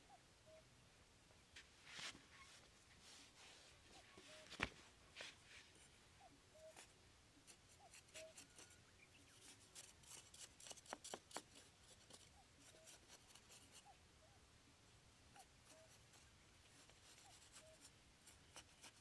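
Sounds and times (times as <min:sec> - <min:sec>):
knife scraping sandy soil: 0:07.5 - 0:08.8, 0:09.4 - 0:13.8.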